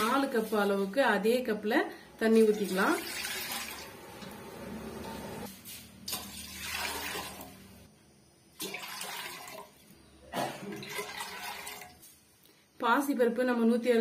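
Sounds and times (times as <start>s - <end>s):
water pouring into metal pot: 2.4s - 4.0s, 6.1s - 7.7s, 8.6s - 9.8s.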